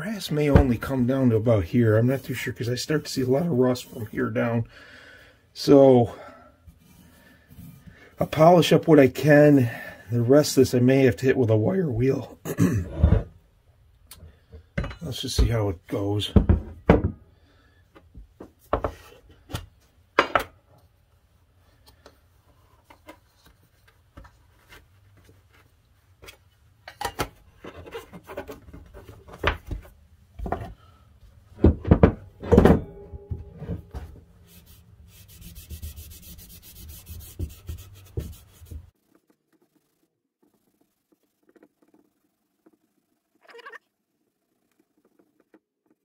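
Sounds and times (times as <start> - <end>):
wadding rubbing on brass: 34.3 - 42.9.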